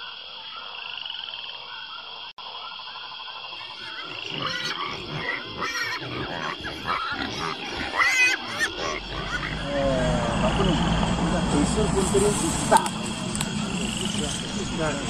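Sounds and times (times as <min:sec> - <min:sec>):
frogs and insects chorus: 0:00.0 - 0:15.0
loud animal calls: 0:03.4 - 0:15.0.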